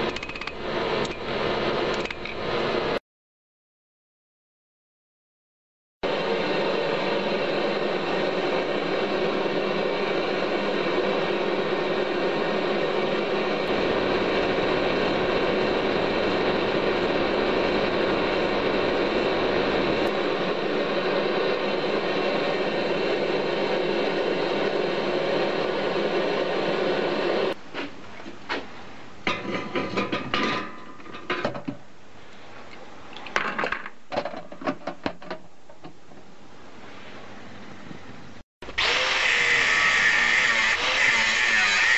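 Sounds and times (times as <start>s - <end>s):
handling knocks and clatter: 33.2s - 36.3s.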